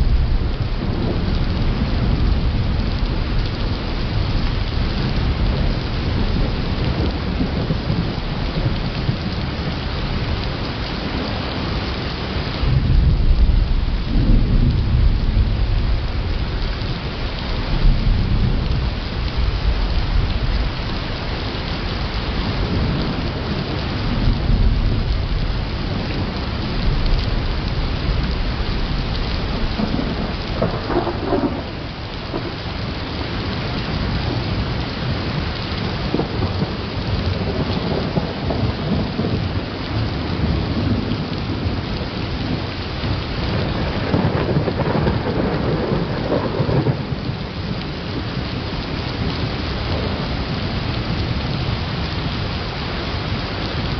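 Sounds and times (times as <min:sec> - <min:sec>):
deep rolling thunder: 0:00.0 - 0:53.9
rain hissing: 0:00.0 - 0:53.9.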